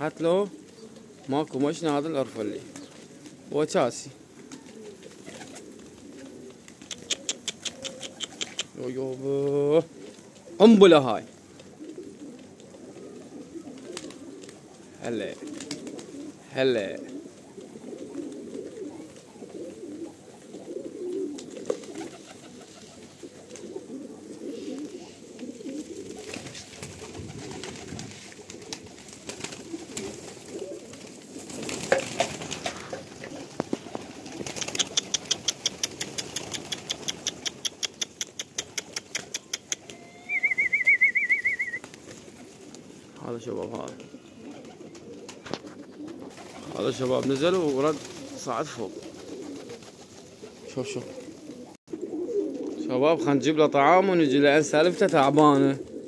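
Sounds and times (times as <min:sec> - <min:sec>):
pigeons cooing: 0:00.0 - 0:56.0
fast sharp clicks: 0:06.8 - 0:08.8, 0:33.4 - 0:40.0
short trilled whistle: 0:40.0 - 0:41.8.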